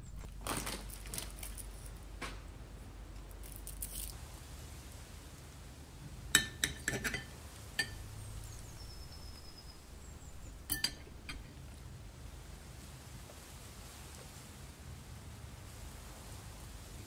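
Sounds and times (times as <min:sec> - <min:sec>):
cutlery clinking on a plate: 0:06.4 - 0:08.0, 0:10.7 - 0:11.6.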